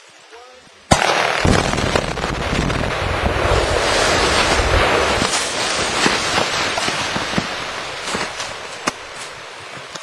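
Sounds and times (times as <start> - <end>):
debris impacts: 1.4 - 9.4
loud rushing noise: 1.6 - 8.4.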